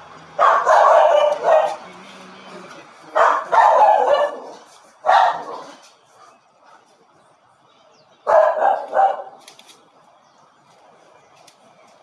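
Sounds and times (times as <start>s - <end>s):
dog barking: 0.4s - 1.8s, 3.1s - 5.8s, 8.2s - 9.4s.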